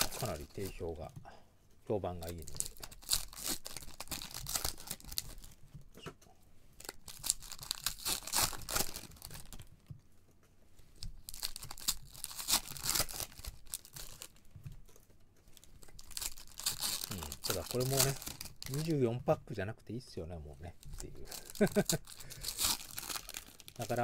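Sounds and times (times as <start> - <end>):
foil wrappers crinkling: 0.0 - 1.1, 2.0 - 5.6, 6.8 - 9.7, 11.0 - 14.5, 15.5 - 19.0, 20.8 - 24.0.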